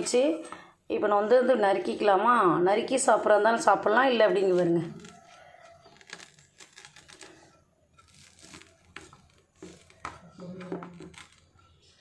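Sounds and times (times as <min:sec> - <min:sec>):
spatula cutting crispy crepe: 0:04.9 - 0:11.7.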